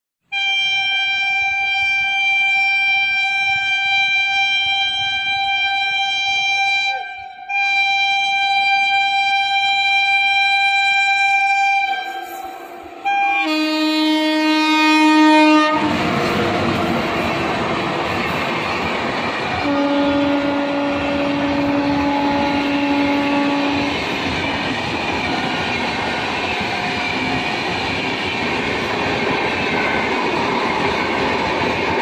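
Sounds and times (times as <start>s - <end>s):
train horn blasts: 0.3s - 17.9s, 19.5s - 24.2s
train passing close by: 0.3s - 32.0s.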